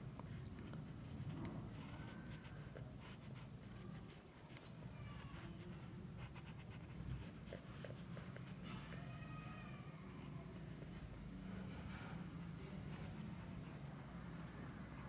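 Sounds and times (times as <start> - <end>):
pencil scratching on paper: 1.0 - 4.5, 5.3 - 8.6.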